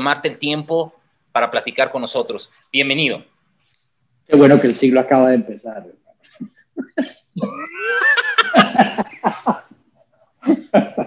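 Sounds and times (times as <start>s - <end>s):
man laughing: 6.2s - 9.8s, 10.4s - 11.0s.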